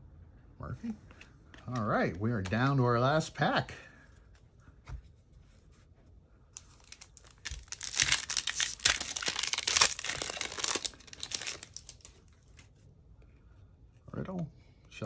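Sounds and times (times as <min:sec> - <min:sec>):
foil wrapper tearing and crinkling: 0:06.8 - 0:12.2.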